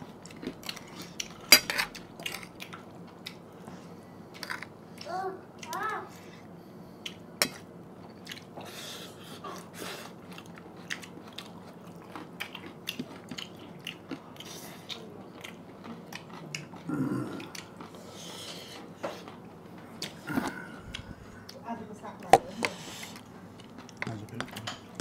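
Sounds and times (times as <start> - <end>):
chewing and biting: 7.0 - 8.6, 9.6 - 21.6.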